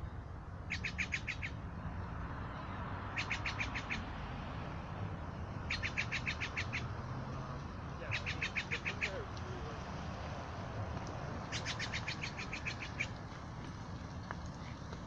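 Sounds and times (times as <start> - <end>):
bird calling harsh notes: 0.6 - 1.6, 3.1 - 4.1, 5.6 - 7.0, 8.0 - 9.3, 11.4 - 13.2.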